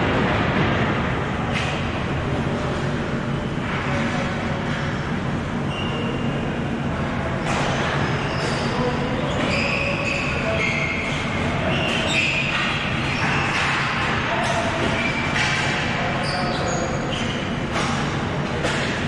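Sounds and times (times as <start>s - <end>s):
shoes squeaking on floor: 7.4s - 13.6s
hockey stick clacks: 11.7s - 16.0s, 17.7s - 19.0s.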